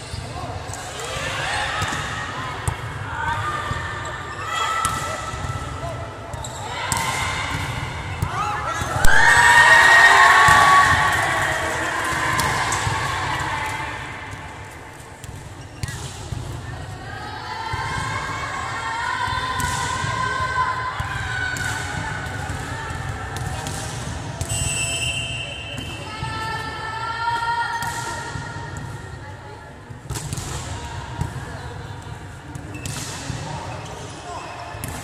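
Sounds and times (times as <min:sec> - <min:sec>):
people shouting in a sports hall: 0:00.0 - 0:15.2, 0:15.8 - 0:29.8
girls screaming and cheering: 0:08.9 - 0:13.3.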